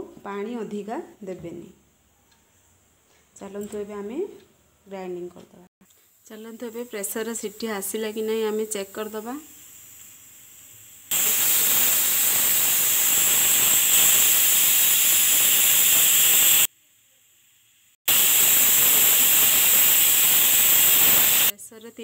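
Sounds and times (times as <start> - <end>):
pressure cooker whistling: 6.3 - 16.7, 18.1 - 21.5.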